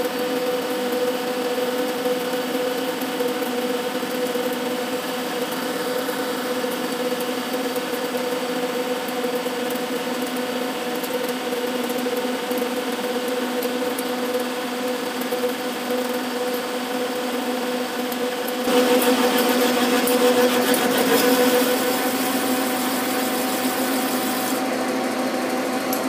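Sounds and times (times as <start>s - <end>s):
hiss of tool cutting steel: 18.7s - 24.6s
metal lathe gear hum and whine: 18.7s - 26.0s.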